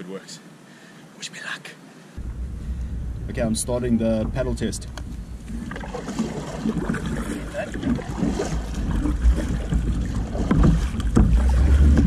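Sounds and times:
wind rumble on microphone: 2.2 - 12.0
paddle splashing in water: 5.0 - 12.0.

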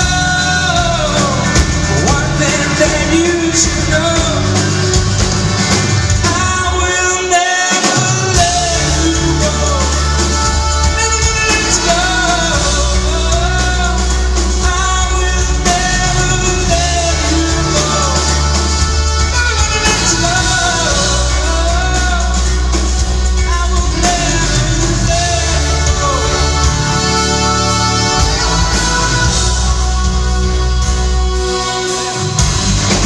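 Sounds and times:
drums: 0.0 - 33.0
electric guitar: 0.0 - 33.0
man singing lead vocal: 0.0 - 33.0.

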